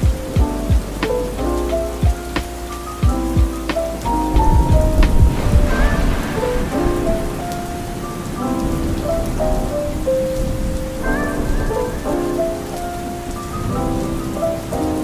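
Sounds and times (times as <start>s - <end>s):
low rumble of thunder: 0.0s - 15.0s
soft instrumental music: 0.0s - 15.0s
steady rain: 0.0s - 15.0s.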